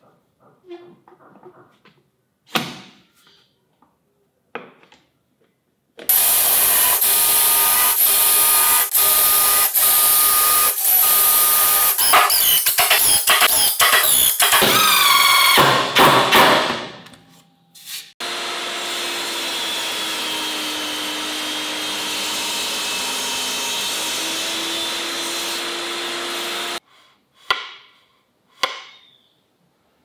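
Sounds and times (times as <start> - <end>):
table saw running: 6.1 - 15.8, 18.2 - 26.8
impact driver whirring and hammering: 6.1 - 16.8.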